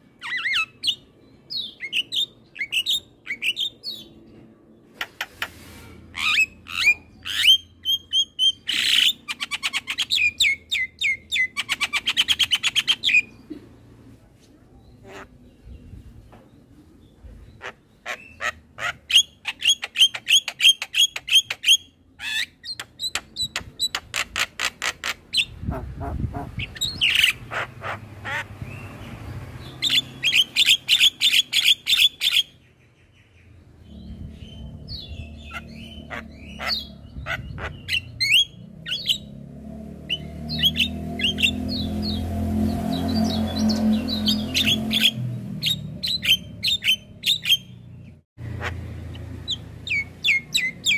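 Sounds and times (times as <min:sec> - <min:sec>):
bird chattering song: 0:00.1 - 0:04.3, 0:04.9 - 0:13.6, 0:14.8 - 0:39.3, 0:42.9 - 0:50.9
low rumble: 0:33.5 - 0:37.9.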